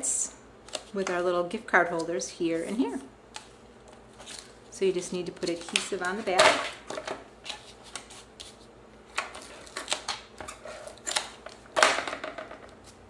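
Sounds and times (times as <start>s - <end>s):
hands handling card stock: 2.0s - 6.4s.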